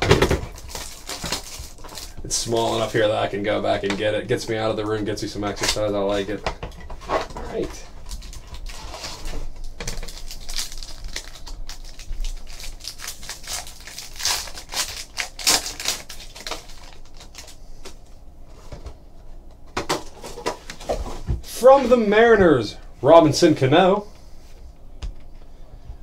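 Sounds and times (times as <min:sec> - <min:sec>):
foil wrapper crinkling: 0:00.2 - 0:04.0, 0:07.4 - 0:18.0.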